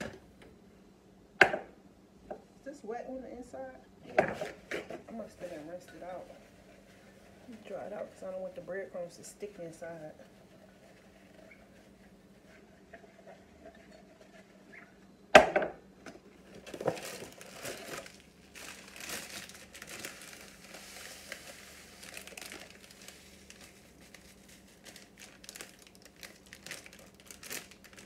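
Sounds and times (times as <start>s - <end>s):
packaging crinkling and rustling: 16.4s - 28.0s
breadcrumbs pouring into a cup: 16.8s - 28.0s.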